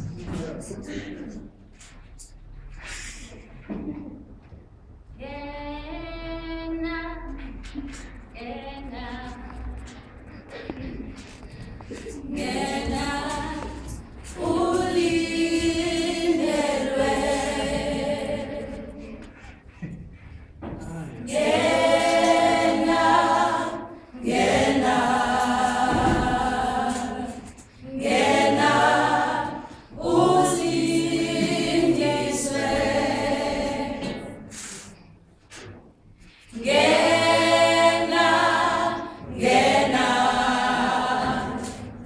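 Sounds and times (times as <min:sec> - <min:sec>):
group singing a cappella: 0:11.8 - 0:19.8, 0:20.6 - 0:35.2, 0:36.4 - 0:42.0.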